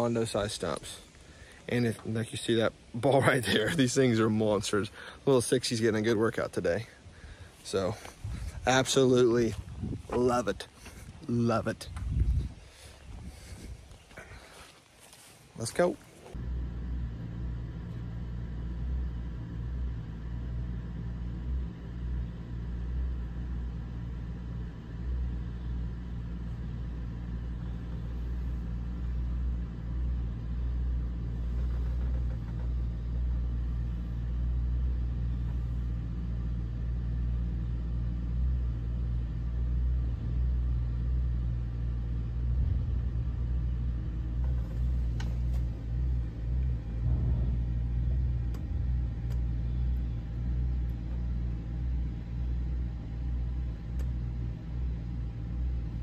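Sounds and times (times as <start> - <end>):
excavator diesel engine running: 16.3 - 56.0.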